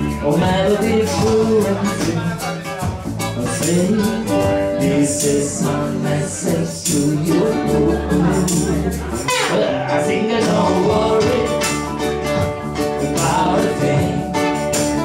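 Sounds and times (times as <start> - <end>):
men singing: 0.0 - 15.0
strummed ukulele: 0.0 - 15.0
ukulele bass line: 0.0 - 15.0
foot drum beat: 10.9 - 13.0.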